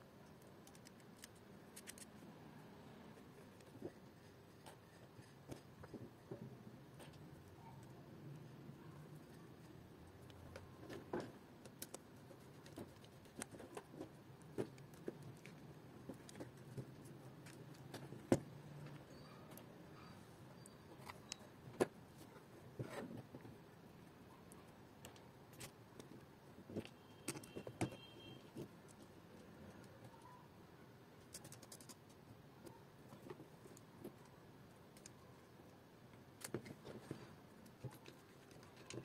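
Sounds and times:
plastic parts clicking and tapping: 24.5s - 29.1s.

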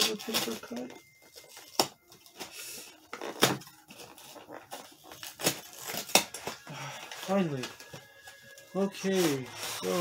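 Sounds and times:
cardboard tearing and scraping: 0.0s - 2.4s, 3.1s - 7.8s.

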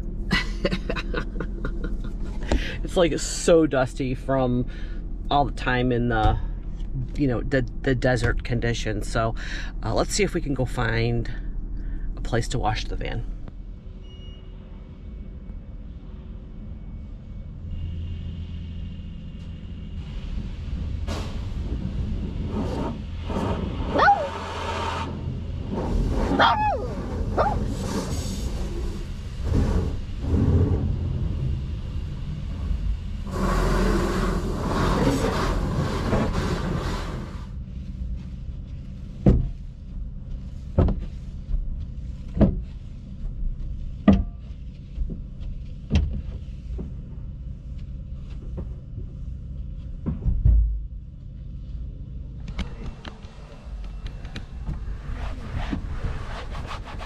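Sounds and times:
low machine hum: 0.0s - 57.0s
car wash clattering: 20.6s - 37.5s
spray hissing against vehicle: 22.4s - 31.0s, 33.2s - 37.6s.

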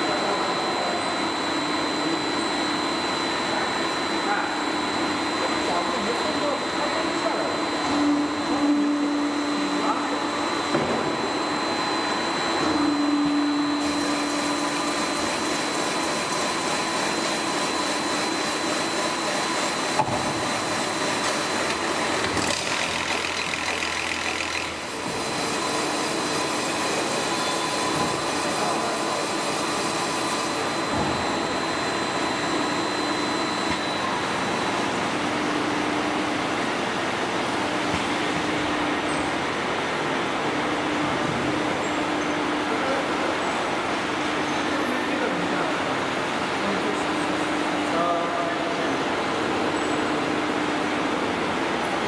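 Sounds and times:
thin high whine: 0.0s - 15.4s
machine whirring: 0.0s - 35.4s.

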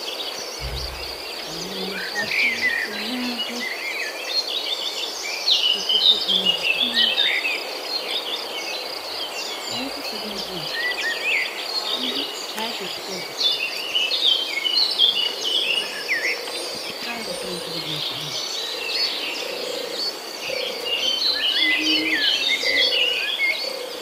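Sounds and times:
birds chirping: 0.0s - 24.0s
high insect trill: 0.6s - 3.6s.

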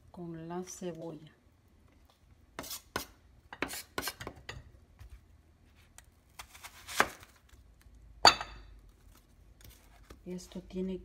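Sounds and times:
knife chopping on wooden board: 6.4s - 7.3s.

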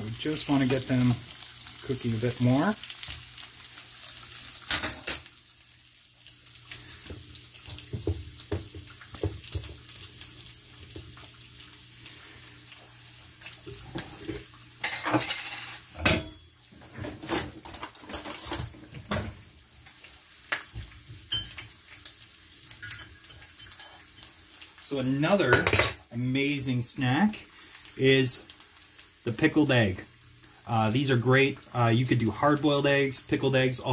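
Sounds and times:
dishes and utensils clattering: 13.7s - 19.4s, 21.2s - 21.7s, 22.7s - 24.3s.

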